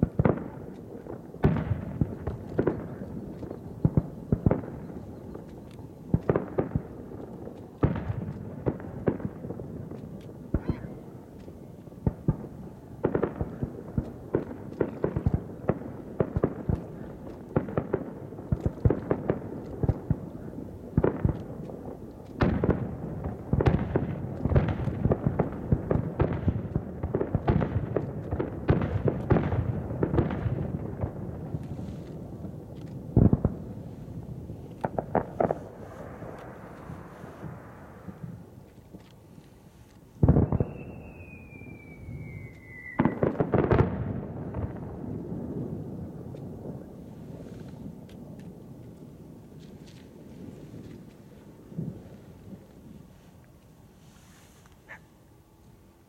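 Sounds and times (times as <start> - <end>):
firework shells bursting: 23.6 - 38.2, 38.8 - 44.9.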